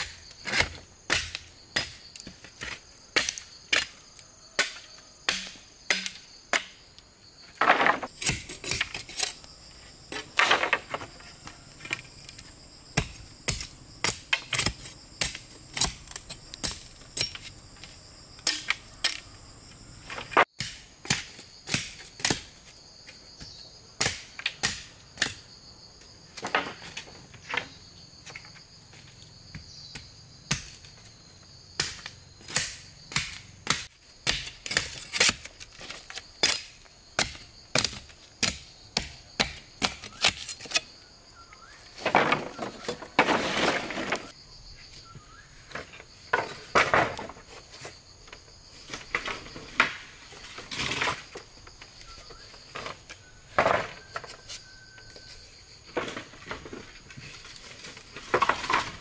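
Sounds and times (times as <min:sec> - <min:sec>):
machete chopping bamboo: 0:00.0 - 0:04.0, 0:04.6 - 0:06.8, 0:07.8 - 0:09.4, 0:13.0 - 0:17.6, 0:18.4 - 0:19.2, 0:20.5 - 0:22.6, 0:24.0 - 0:25.4, 0:29.9 - 0:30.8, 0:31.8 - 0:40.9
high insect drone: 0:00.0 - 0:59.0.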